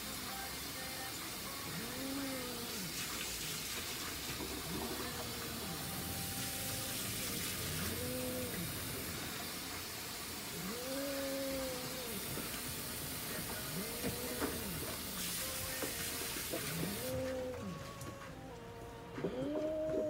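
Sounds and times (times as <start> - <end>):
steady hiss: 0.0 - 17.4
cat yowling: 1.8 - 3.0, 7.7 - 8.8, 10.6 - 12.3, 13.7 - 14.9, 16.8 - 17.8, 19.2 - 20.0.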